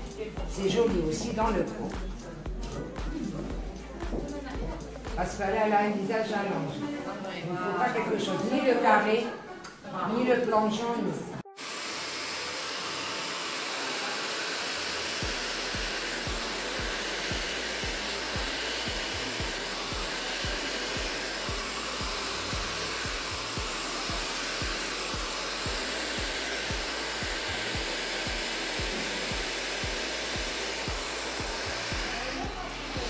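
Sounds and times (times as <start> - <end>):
hair dryer blowing: 0.0 - 5.6, 11.4 - 33.0
background music with steady beat: 0.0 - 6.2, 14.6 - 33.0.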